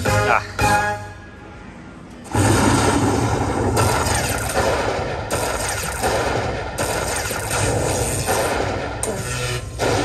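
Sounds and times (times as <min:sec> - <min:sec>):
slot machine electric crackling: 0:03.8 - 0:06.1, 0:06.8 - 0:08.6.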